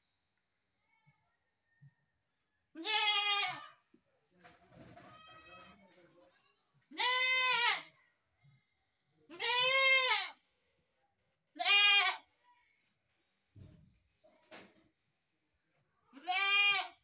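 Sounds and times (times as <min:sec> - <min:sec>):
young goat bleating: 0:02.8 - 0:03.8, 0:06.4 - 0:07.9, 0:09.3 - 0:10.4, 0:11.6 - 0:12.3, 0:16.1 - 0:17.0.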